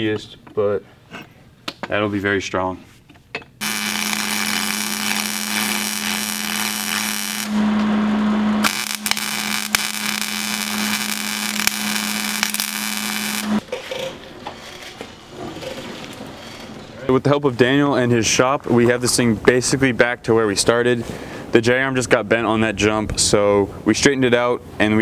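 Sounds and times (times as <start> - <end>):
welding arc crackling: 3.6 - 7.9, 8.6 - 13.6
faint hum: 3.6 - 13.6.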